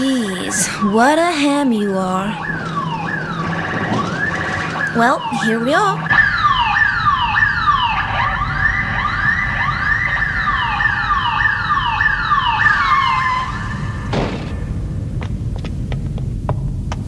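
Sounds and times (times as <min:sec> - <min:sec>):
siren yelping: 0:00.0 - 0:14.1
rising and falling siren tone: 0:00.4 - 0:15.1
vehicle engine rumble: 0:12.7 - 0:17.0.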